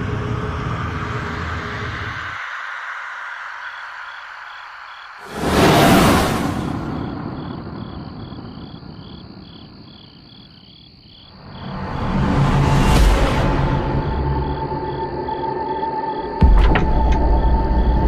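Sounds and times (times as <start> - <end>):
crickets chirping: 0.0 - 18.0
dramatic whooshing swells: 5.2 - 8.2.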